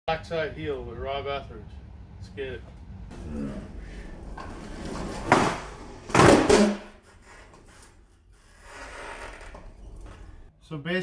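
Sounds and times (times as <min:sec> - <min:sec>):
skateboard landing and scraping: 0:04.3 - 0:08.0.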